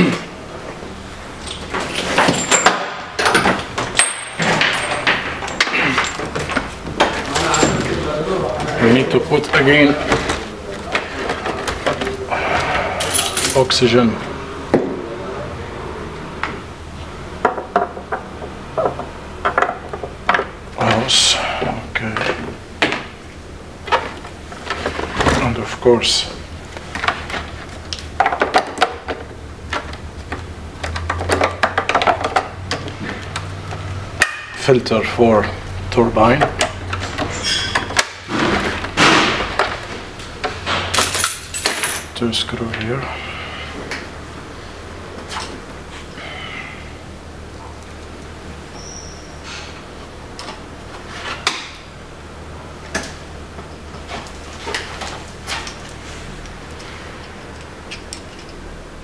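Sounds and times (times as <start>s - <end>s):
steady low hum: 0.0s - 59.0s
clicks and knocks of parts handled: 26.8s - 34.5s, 54.1s - 58.6s.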